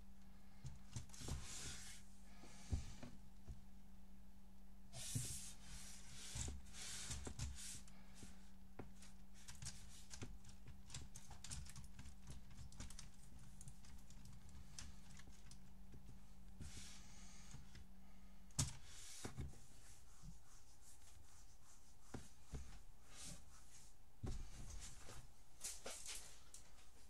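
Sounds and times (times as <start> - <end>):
brushing rustles: 1.0 - 3.0, 4.9 - 10.0, 18.7 - 27.0.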